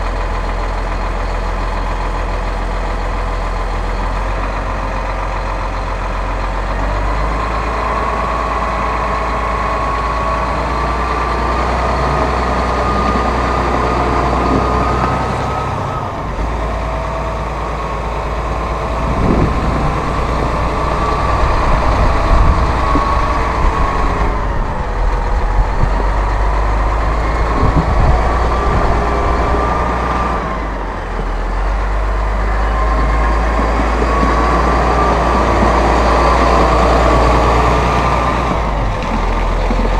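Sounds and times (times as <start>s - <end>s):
tractor diesel engine running: 0.0s - 39.9s
thin whine: 18.1s - 31.0s.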